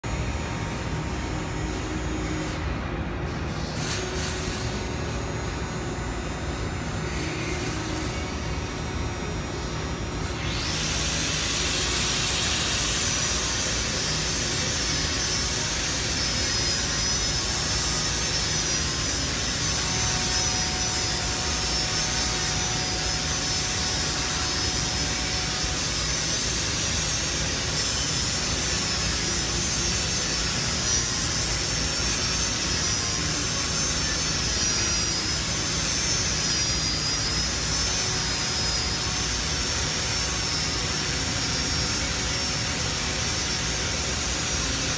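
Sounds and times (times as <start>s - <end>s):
angle grinder grinding metal: 10.4s - 44.9s.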